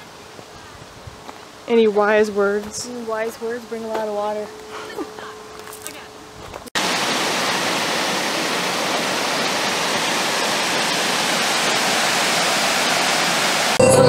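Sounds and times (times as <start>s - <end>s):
water rushing over rocks: 6.8s - 13.8s.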